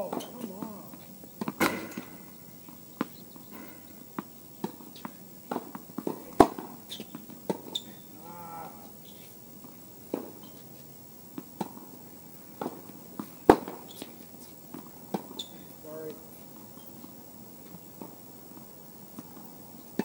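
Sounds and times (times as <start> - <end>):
tennis balls struck by rackets: 0.0 - 8.1, 9.6 - 10.6, 11.3 - 16.2.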